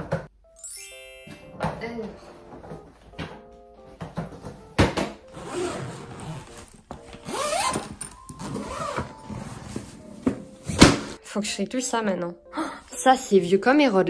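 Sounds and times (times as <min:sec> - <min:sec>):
suitcase knocking on tiled floor: 0:04.0 - 0:05.2
suitcase zipper being pulled: 0:05.3 - 0:09.8.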